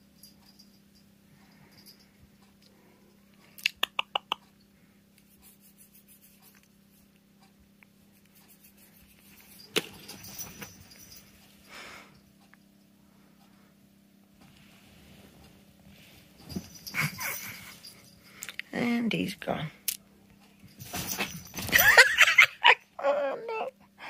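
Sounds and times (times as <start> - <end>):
collar tag jingling: 9.2 - 11.6, 16.4 - 18.9, 20.6 - 22.8.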